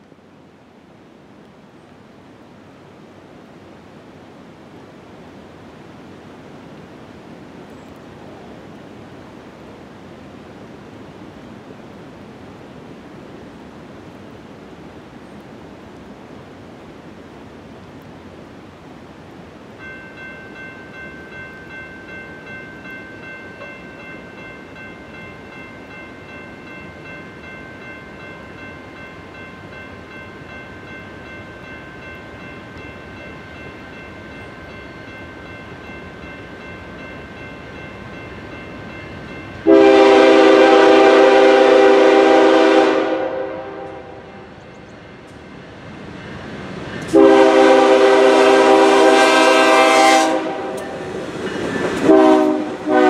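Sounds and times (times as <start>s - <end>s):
background hiss: 0.0s - 53.0s
train air horn blast: 39.6s - 44.4s, 47.1s - 51.0s, 52.0s - 53.0s.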